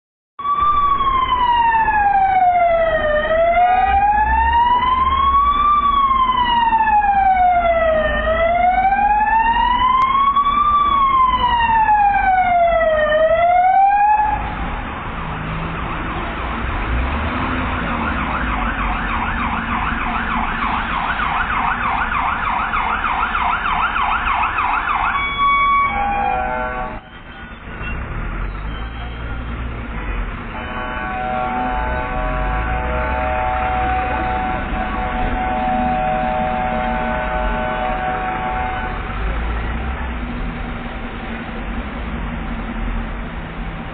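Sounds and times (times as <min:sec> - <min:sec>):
emergency siren wailing and yelping: 0:00.4 - 0:14.7, 0:17.6 - 0:27.2, 0:31.0 - 0:39.1.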